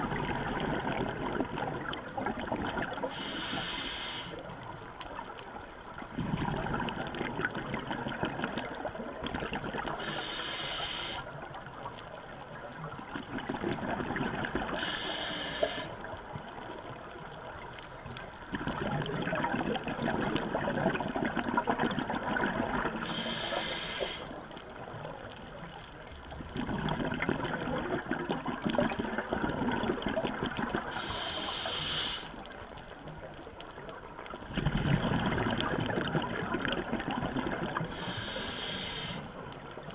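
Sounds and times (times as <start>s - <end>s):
exhaled bubbles rushing: 0.0s - 3.1s, 6.1s - 10.0s, 13.0s - 14.8s, 18.5s - 23.0s, 26.4s - 31.0s, 34.4s - 38.0s
regulator hissing inhale: 3.0s - 4.5s, 10.0s - 11.4s, 14.7s - 16.0s, 23.0s - 24.4s, 30.9s - 32.4s, 37.9s - 39.4s.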